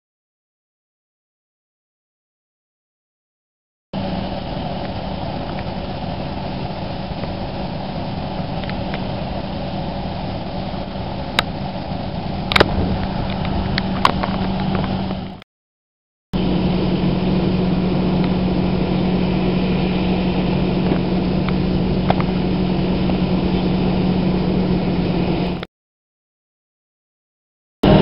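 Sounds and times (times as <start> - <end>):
fire engine idling: 16.4 - 25.6.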